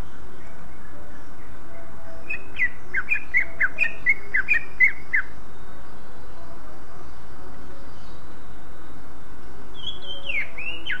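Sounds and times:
steady hiss: 0:04.0 - 0:11.0.

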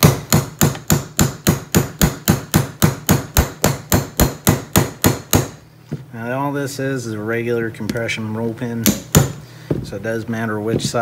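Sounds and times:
hammer tapping a pin punch: 0:00.0 - 0:05.6, 0:08.8 - 0:09.8.

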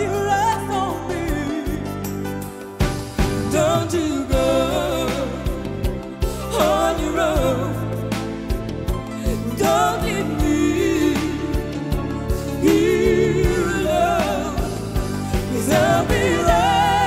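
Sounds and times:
woman singing pop song: 0:00.0 - 0:02.3, 0:03.4 - 0:17.0
backing music with steady beat: 0:00.0 - 0:17.0.

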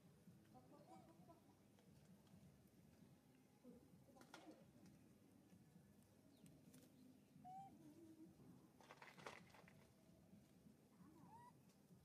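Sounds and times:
faint animal calls: 0:07.4 - 0:08.2, 0:11.0 - 0:11.7
rustle of leaves and twigs: 0:08.7 - 0:10.6.

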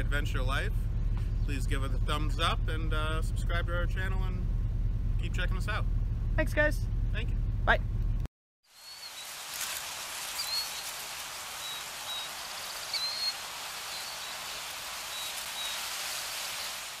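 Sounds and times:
rain-like hiss: 0:08.6 - 0:17.0
high bird chirps: 0:08.7 - 0:09.4, 0:10.2 - 0:16.8.

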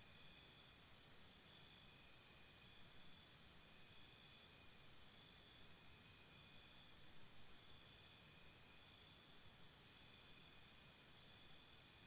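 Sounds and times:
crickets chirping: 0:00.2 - 0:12.0.

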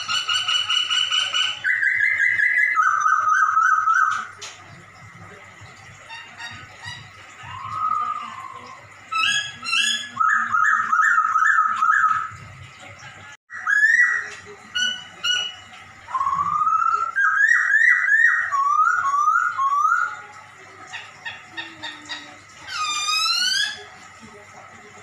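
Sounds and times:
bird singing mewing whistles: 0:16.1 - 0:20.2.

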